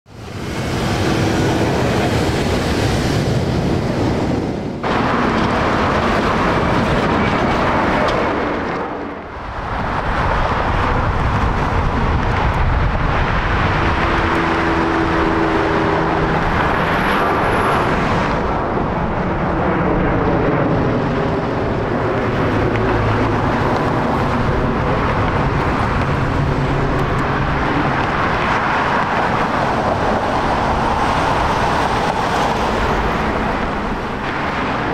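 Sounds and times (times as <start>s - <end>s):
jet engines rushing and rumbling: 0.1s - 34.9s.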